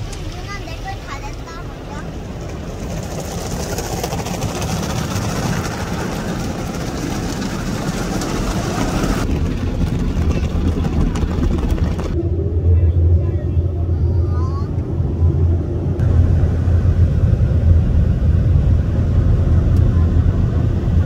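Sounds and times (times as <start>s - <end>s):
low machinery rumble: 0.0s - 21.0s.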